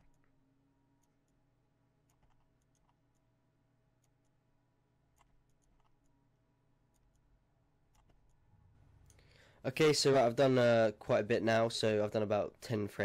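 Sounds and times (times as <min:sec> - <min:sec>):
computer mouse clicks: 0:02.0 - 0:03.3, 0:05.1 - 0:06.2, 0:07.9 - 0:08.4.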